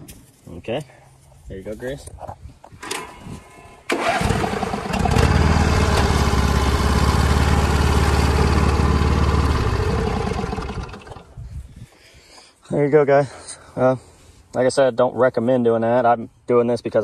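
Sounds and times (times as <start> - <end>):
starter cranking: 3.9 - 6.9
lawn tractor engine running: 3.9 - 11.3.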